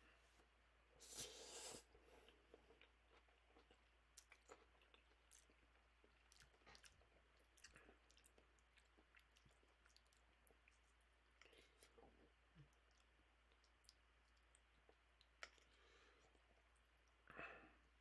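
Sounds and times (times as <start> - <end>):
quiet chewing: 0.4 - 18.0
person slurping noodles: 1.0 - 1.9.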